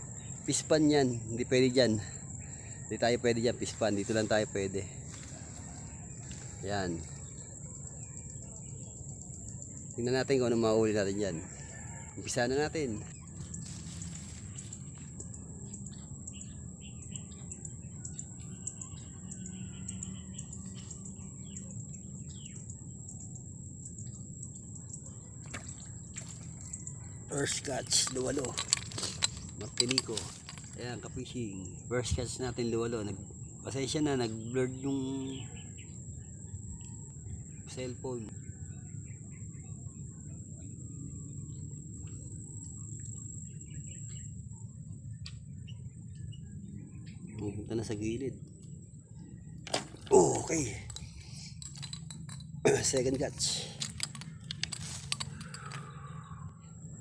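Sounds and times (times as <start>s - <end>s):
insect trill: 0.0s - 57.0s
steady high-pitched whine: 0.0s - 57.0s
birds chirping and whistling: 12.7s - 23.4s, 24.2s - 57.0s
low steady rumble: 35.4s - 57.0s.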